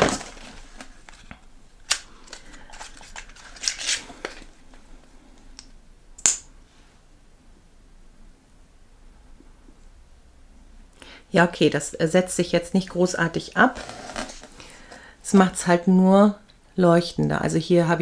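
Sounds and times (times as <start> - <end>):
packaging rustle: 0.0 - 4.9.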